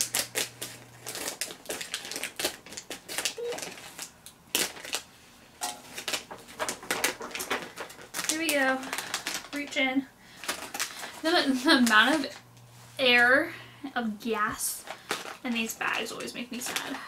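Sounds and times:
scissors cutting plastic bag: 0.0 - 5.0, 5.6 - 9.8, 10.4 - 11.1
plastic bag crinkling: 0.0 - 13.2, 14.4 - 17.0.

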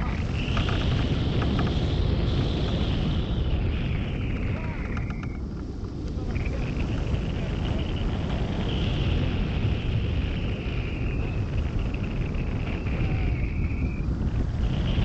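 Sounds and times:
airflow rushing over microphone: 0.0 - 15.0.

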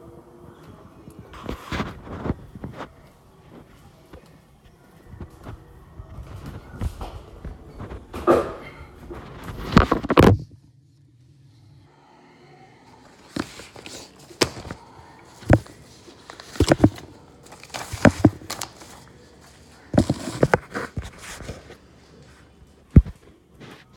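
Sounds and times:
phone rubbing: 13.2 - 21.7.

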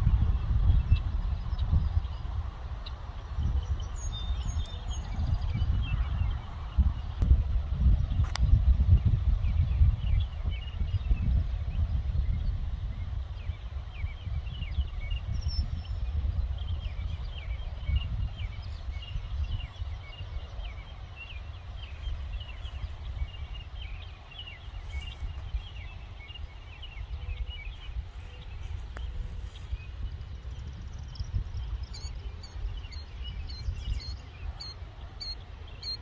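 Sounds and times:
wind rumbling on microphone: 0.0 - 36.0
small birds chirping: 8.0 - 36.0.

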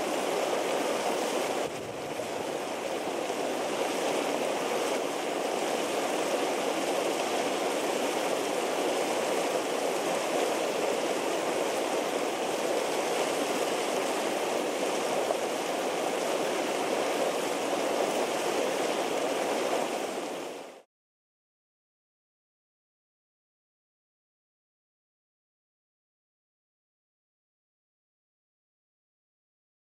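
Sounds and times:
hot spring water bubbling: 0.0 - 20.8.

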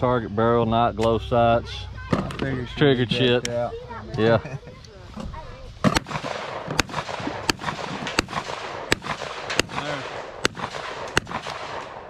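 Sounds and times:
pistol shots: 5.8 - 12.0.

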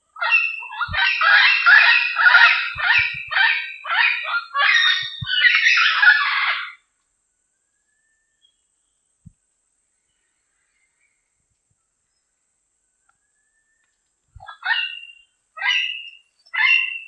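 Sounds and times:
parrot squawking: 0.2 - 6.8, 14.4 - 17.0.

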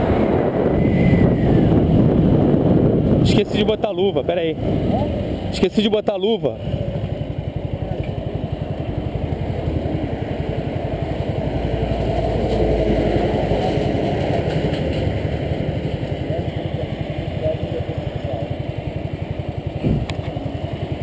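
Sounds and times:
small motorcycle engine idling: 4.2 - 21.0.

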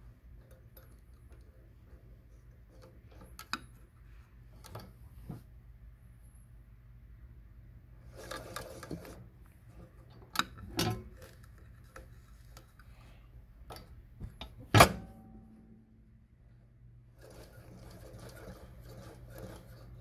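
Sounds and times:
low steady hum: 0.0 - 20.0
sewing machine clicks and knocks: 17.2 - 20.0.

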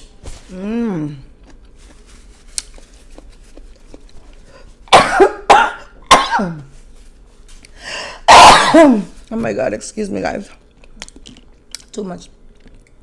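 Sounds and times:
woman groaning: 0.5 - 1.2
woman coughing hard: 4.9 - 6.7, 8.2 - 9.1.

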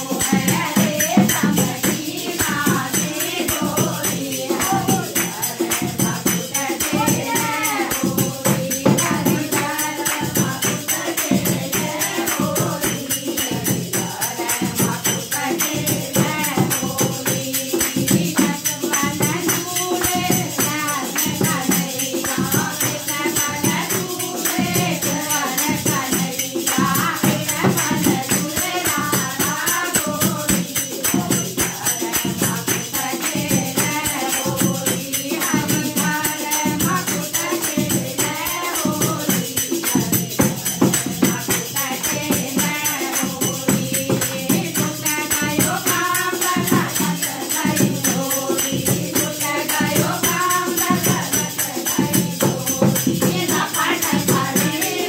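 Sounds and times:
hand drum beat: 0.0 - 55.0
women singing together: 0.0 - 55.0
hand clapping: 38.5 - 47.4.

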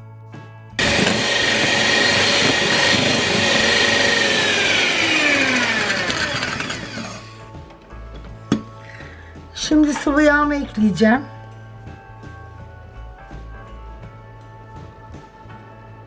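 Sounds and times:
electric hand mixer whining: 0.8 - 7.5.

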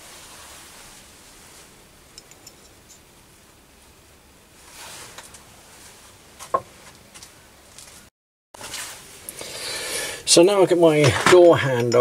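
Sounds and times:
soft rustle: 0.0 - 4.0, 4.6 - 9.3
handling small brass parts: 2.2 - 3.1.

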